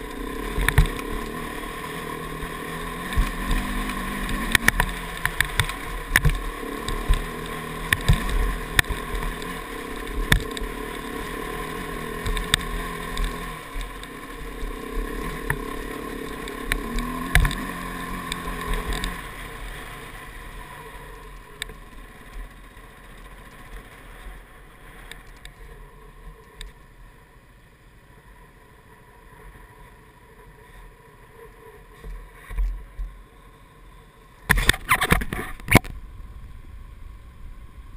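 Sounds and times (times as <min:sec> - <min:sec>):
motorcycle engine climbing: 0:00.0 - 0:26.9, 0:34.5 - 0:37.9.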